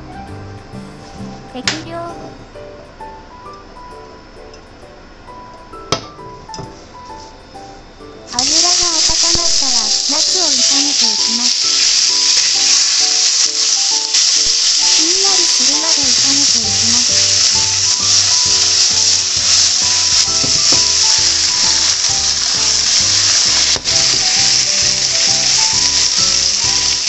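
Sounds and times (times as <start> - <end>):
vegetables sizzling in oil: 8.3 - 27.0.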